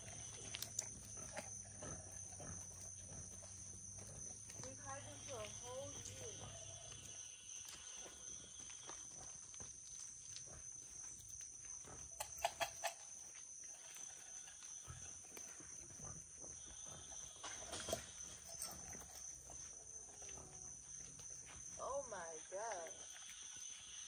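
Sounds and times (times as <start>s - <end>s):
high insect chorus: 0.0s - 24.0s
animals rustling and knocking: 8.2s - 21.8s.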